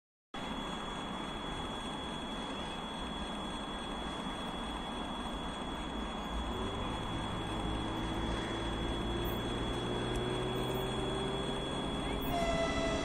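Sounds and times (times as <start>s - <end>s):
high-pitched whine: 0.4s - 13.0s
distant freight train rumble: 6.4s - 13.0s.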